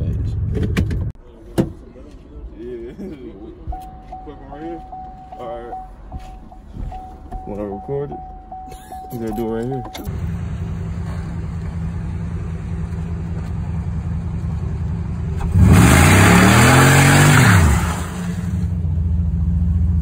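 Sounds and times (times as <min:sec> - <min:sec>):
car engine idling and revving: 0:03.7 - 0:20.0
tires squealing on pavement: 0:15.7 - 0:18.4.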